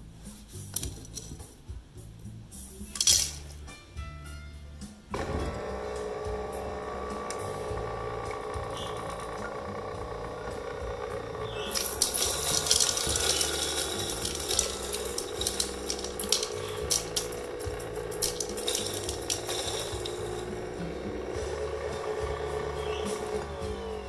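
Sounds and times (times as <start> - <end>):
coffee grinder humming: 5.1 - 24.0.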